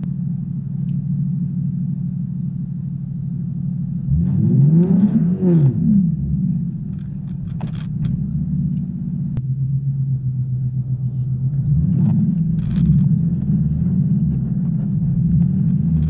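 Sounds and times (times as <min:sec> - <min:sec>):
car engine droning inside cabin: 0:00.0 - 0:16.0.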